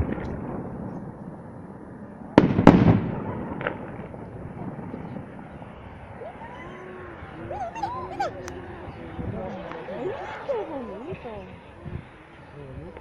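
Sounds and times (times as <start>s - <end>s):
firework crackle: 0.0s - 6.5s.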